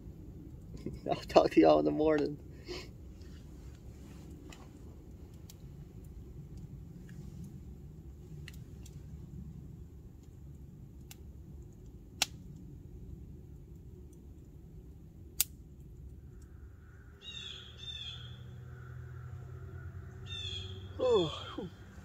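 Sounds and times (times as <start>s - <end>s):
burning wood popping: 8.2s - 9.1s
bird calling: 17.1s - 22.0s.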